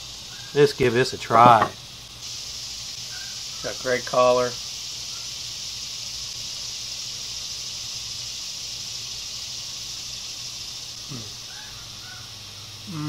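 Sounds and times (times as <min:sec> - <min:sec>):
high-pitched insect chorus: 0:00.0 - 0:13.0
man murmuring while chewing: 0:11.1 - 0:11.4.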